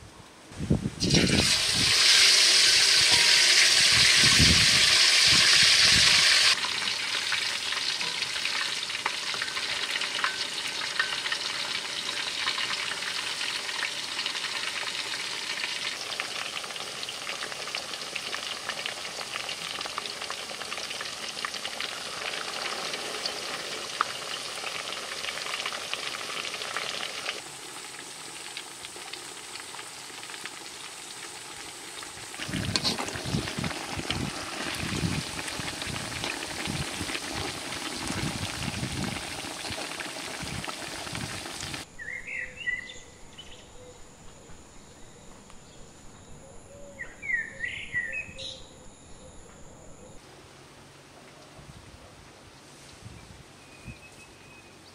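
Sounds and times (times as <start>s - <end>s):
chicken deep-frying in oil: 1.0s - 42.1s.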